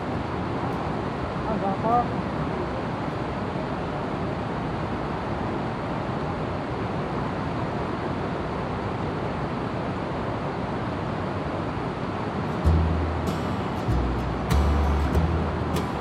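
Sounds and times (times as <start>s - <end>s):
river rushing over rocks: 0.0s - 16.0s.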